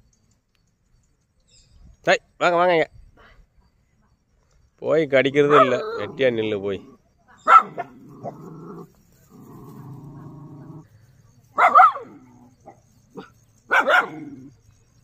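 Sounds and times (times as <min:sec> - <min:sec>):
dog barking: 0:05.4 - 0:06.1, 0:07.4 - 0:08.4, 0:11.6 - 0:14.5.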